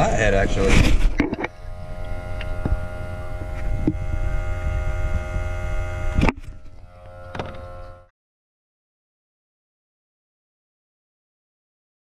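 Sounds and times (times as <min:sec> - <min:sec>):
smoke machine pump humming: 0:00.0 - 0:08.1.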